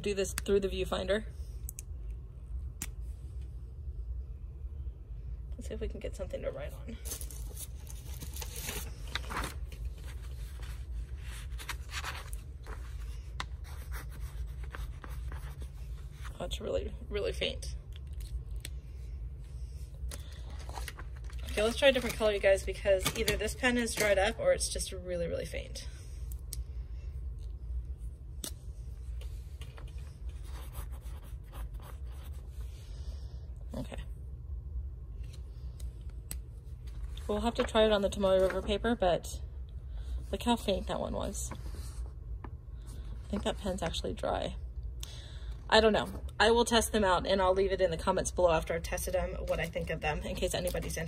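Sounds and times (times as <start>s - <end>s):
steady low hum: 0.0s - 51.0s
paper being handled: 7.0s - 16.4s, 36.8s - 38.9s
marker scratching on paper: 13.6s - 16.3s, 29.9s - 32.8s.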